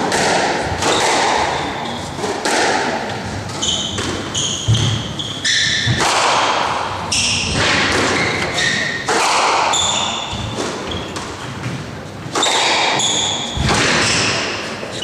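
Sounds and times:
shoes squeaking on wooden floor: 3.5 - 6.0, 7.1 - 9.0, 12.4 - 14.3.

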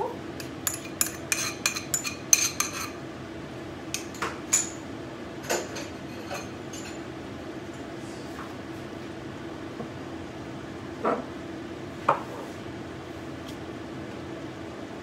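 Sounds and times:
steady low hum: 0.0 - 15.0
metal spoon clinking on plate: 0.4 - 3.0.

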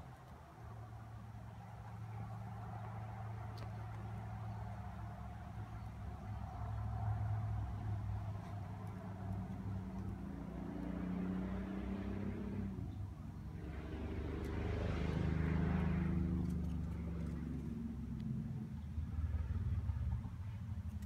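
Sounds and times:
vehicle engine humming: 0.0 - 21.0
rush of passing noise: 9.8 - 20.6.

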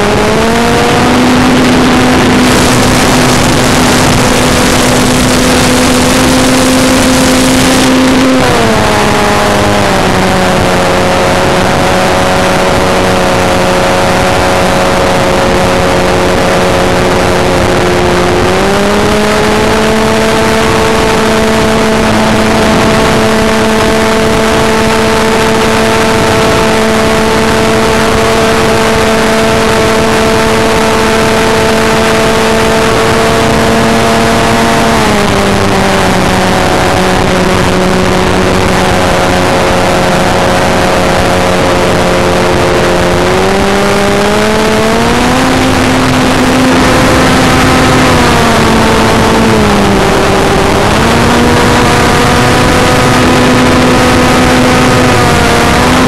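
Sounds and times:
wind rushing: 0.0 - 19.3.

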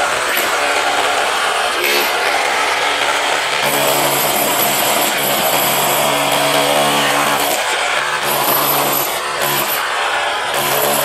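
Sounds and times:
rotary hammer chiselling concrete: 0.0 - 11.0.

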